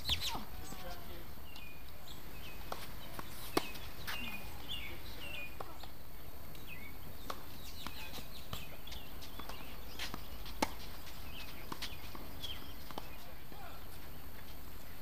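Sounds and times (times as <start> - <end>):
outdoor background noise: 0.0 - 15.0
bird chirps: 6.6 - 14.2.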